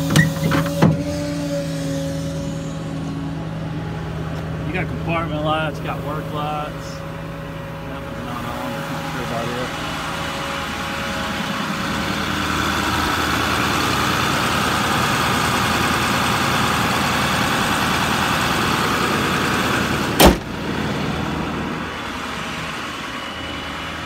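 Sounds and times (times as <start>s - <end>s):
diesel engine idling: 0.0s - 24.0s.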